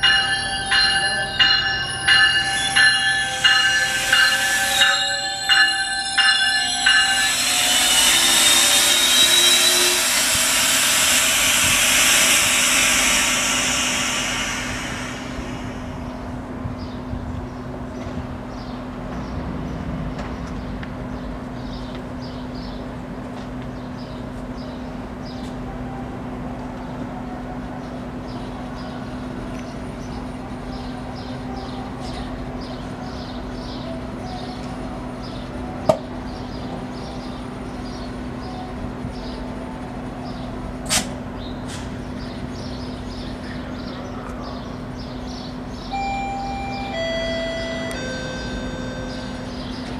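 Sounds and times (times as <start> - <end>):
faint high chirps: 0.0 - 16.4
idling train humming: 0.0 - 22.2, 22.8 - 49.9.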